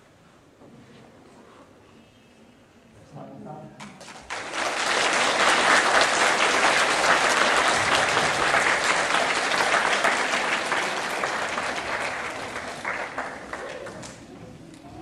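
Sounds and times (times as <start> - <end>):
audience applauding: 4.0 - 14.3.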